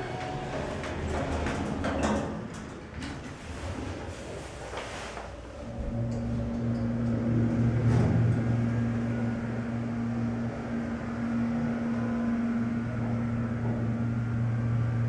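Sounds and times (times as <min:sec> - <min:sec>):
elevator pump motor humming: 0:05.4 - 0:15.0.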